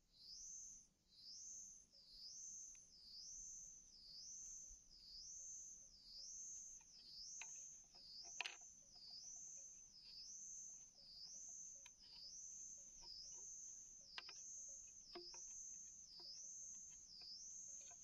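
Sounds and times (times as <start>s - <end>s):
insect calling: 0.2s - 18.0s
bamboo clicks and taps: 6.8s - 8.7s, 11.2s - 18.0s.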